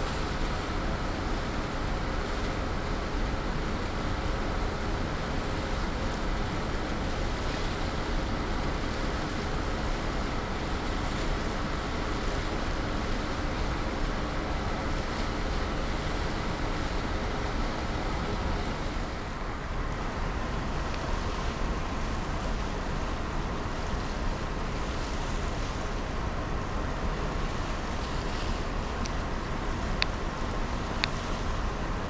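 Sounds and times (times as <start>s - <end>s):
faint ship engine hum: 0.0s - 32.0s
water rushing along hull: 0.0s - 32.0s.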